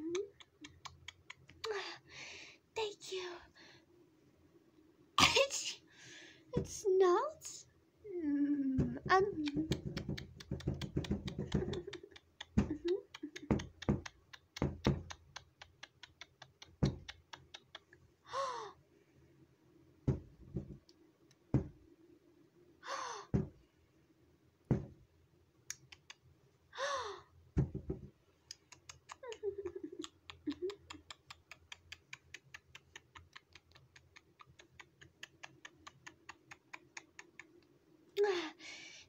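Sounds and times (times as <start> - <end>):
fingers tapping on screen: 9.3 - 17.9.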